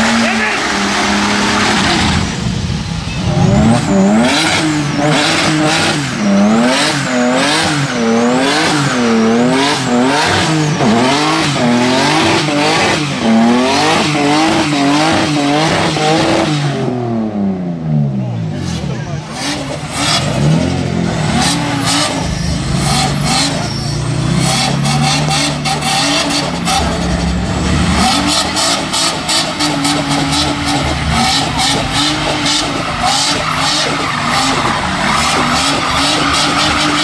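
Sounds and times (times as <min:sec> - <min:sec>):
car engine revving: 0:00.0 - 0:37.0
tyres squealing: 0:28.0 - 0:37.0.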